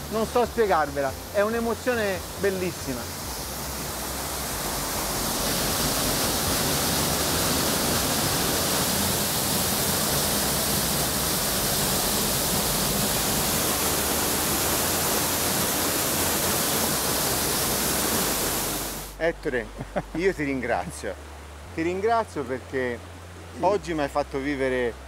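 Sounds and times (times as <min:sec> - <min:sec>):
water rushing over rocks: 0:00.0 - 0:19.3.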